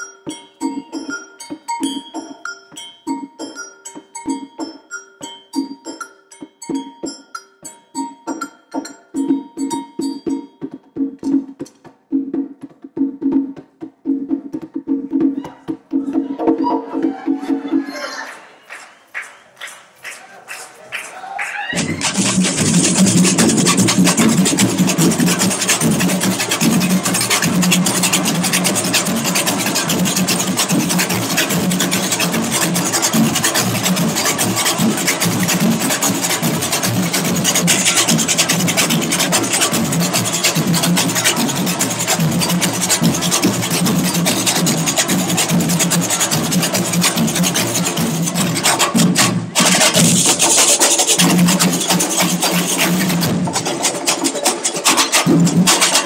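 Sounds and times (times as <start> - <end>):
fast hand drumming on conga: 9.1 - 18.0, 21.7 - 56.0.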